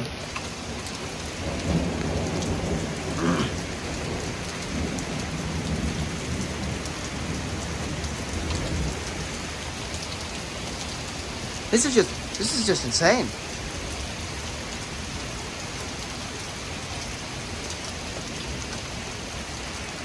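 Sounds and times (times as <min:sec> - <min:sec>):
heavy rain on pavement: 0:00.0 - 0:20.0
low rumble of thunder: 0:01.3 - 0:09.6.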